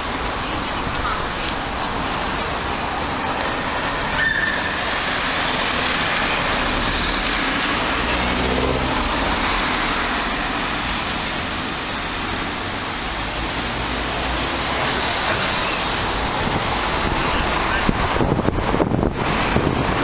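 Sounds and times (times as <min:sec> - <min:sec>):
street traffic noise: 0:00.0 - 0:20.0
vehicle engine passing: 0:05.2 - 0:18.4.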